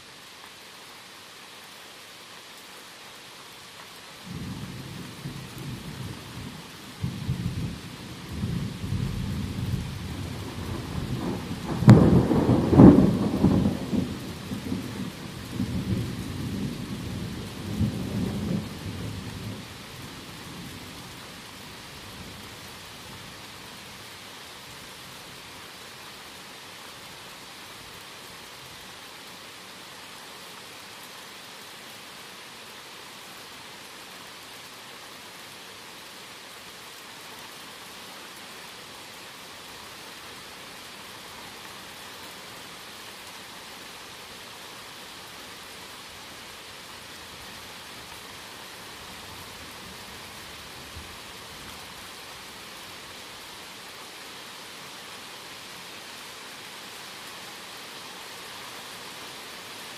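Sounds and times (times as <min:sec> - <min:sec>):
steady rain falling: 0:00.0 - 0:59.9
thunder rumbling: 0:07.0 - 0:15.0.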